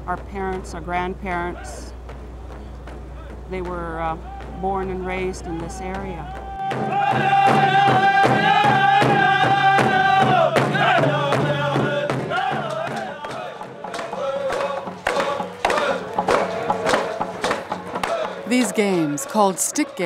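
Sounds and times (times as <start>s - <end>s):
hand drums beating: 0.0s - 19.2s
men singing: 6.2s - 20.0s.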